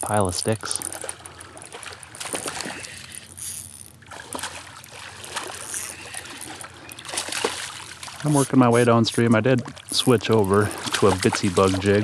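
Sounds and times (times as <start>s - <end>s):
fish splashing and thrashing: 0.1s - 12.0s.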